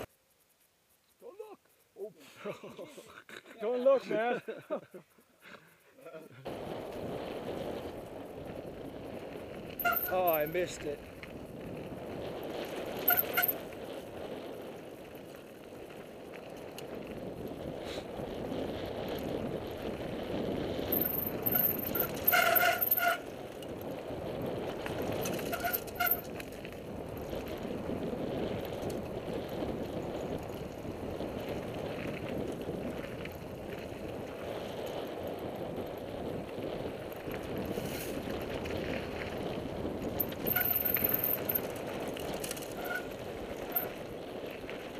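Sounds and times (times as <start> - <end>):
bike tyres on dirt: 0.0 - 0.3, 6.4 - 44.9
wind rush on microphone: 6.4 - 44.9
high brake squeals: 9.8 - 10.8, 13.0 - 13.7, 21.0 - 23.3, 25.2 - 26.3, 40.4 - 41.6, 42.6 - 43.9.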